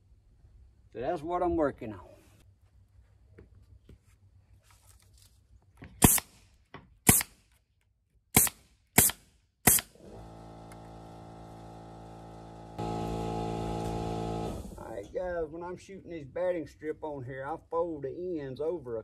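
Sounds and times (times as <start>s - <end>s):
pneumatic staple gun firing: 6.0s - 6.4s, 7.0s - 7.4s, 8.4s - 14.8s.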